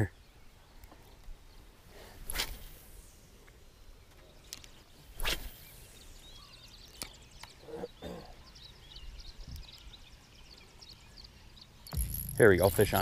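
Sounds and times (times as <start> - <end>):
birds chirping: 0.0 - 13.0
fishing rod swishing: 2.2 - 3.0, 5.2 - 5.8.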